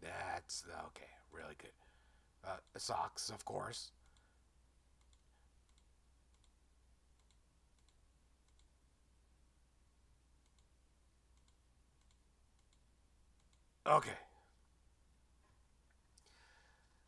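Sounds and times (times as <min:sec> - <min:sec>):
low electrical hum: 0:00.0 - 0:17.0
computer mouse clicks: 0:04.0 - 0:04.3, 0:05.0 - 0:08.8, 0:10.4 - 0:10.7, 0:11.3 - 0:13.7.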